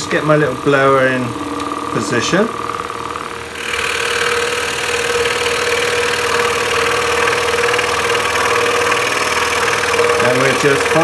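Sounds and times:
saw blade rasping through wood: 0.0s - 11.0s
scroll saw humming: 0.0s - 11.0s.

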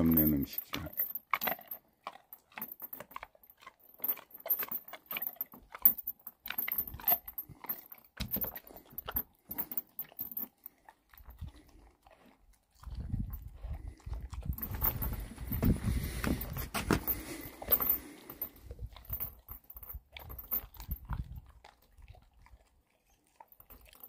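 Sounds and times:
metal chain leash clinking: 0.0s - 11.5s, 13.0s - 21.5s, 23.4s - 24.0s
dog chewing a bone: 1.3s - 4.3s, 10.6s - 14.5s, 18.9s - 24.0s.

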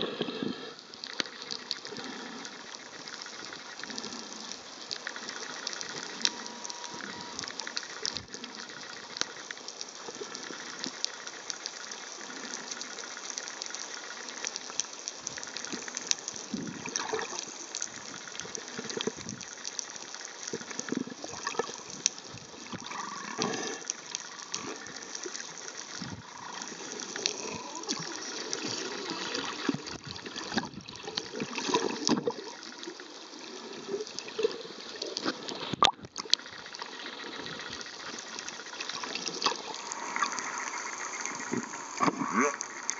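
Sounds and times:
underwater watery hiss: 0.0s - 42.9s.

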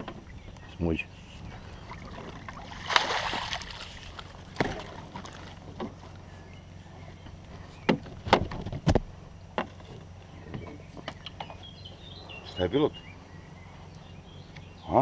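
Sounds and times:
water splashing: 1.8s - 5.7s.

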